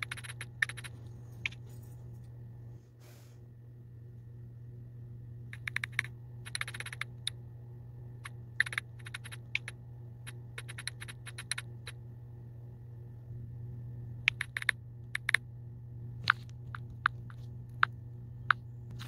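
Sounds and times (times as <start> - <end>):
phone keyboard clicks: 0.0 - 1.6, 5.5 - 7.4, 8.2 - 12.0, 14.3 - 15.4
steady low hum: 0.0 - 19.0.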